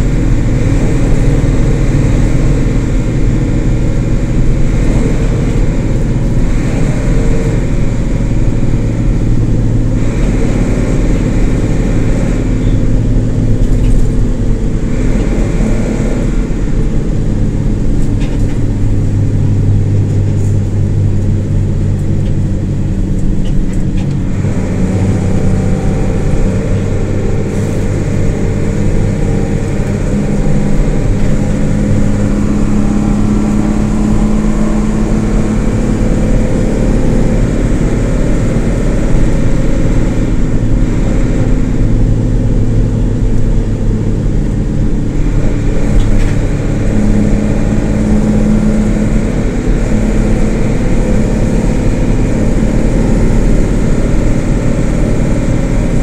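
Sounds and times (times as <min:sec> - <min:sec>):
bus diesel engine running: 0:00.0 - 0:56.0.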